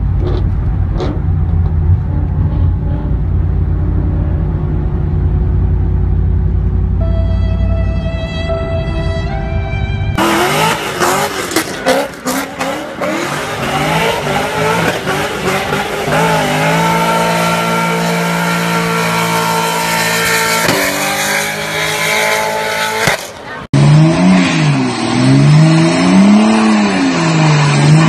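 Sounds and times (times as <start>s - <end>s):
cars accelerating hard: 10.1s - 28.0s
sports car engine revving: 10.2s - 28.0s.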